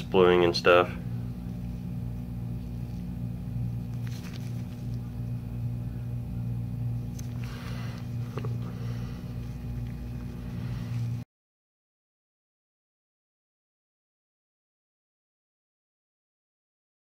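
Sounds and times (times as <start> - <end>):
low electrical hum: 0.0 - 11.2
gloved hands rustling and clicking: 3.9 - 5.1.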